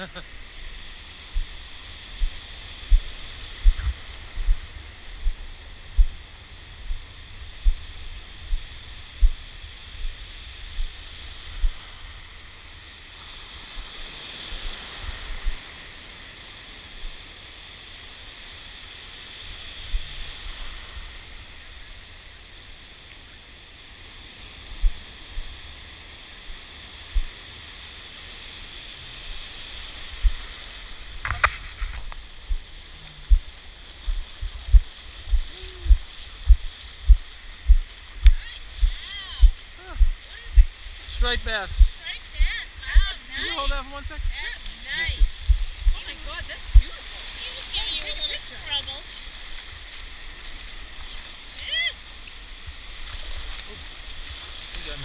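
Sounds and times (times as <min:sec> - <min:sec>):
shallow surf washing and fizzing: 0:00.0 - 0:55.0
dull low thumps: 0:01.3 - 0:01.6, 0:02.2 - 0:06.2, 0:06.8 - 0:07.8, 0:08.4 - 0:09.4, 0:10.0 - 0:10.9, 0:11.5 - 0:11.8, 0:24.8 - 0:25.5, 0:27.1 - 0:27.3, 0:30.2 - 0:30.4, 0:31.1 - 0:43.1, 0:45.2 - 0:46.1.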